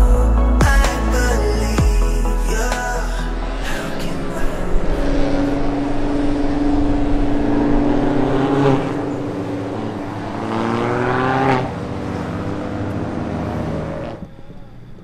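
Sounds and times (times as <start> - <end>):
race car engine accelerating past: 3.4 - 14.6.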